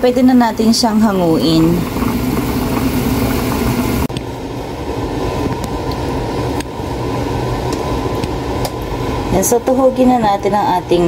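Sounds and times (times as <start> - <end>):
water boiling and bubbling: 0.0 - 4.1
low hum: 0.0 - 9.4.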